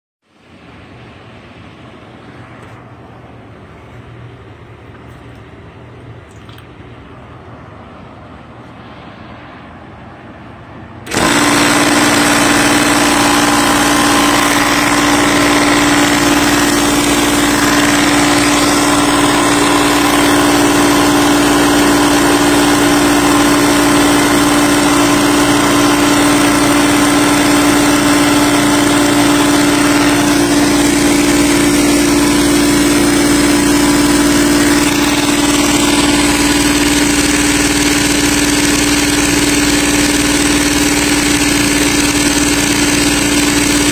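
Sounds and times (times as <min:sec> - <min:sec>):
air compressor humming: 0:11.0 - 0:43.9.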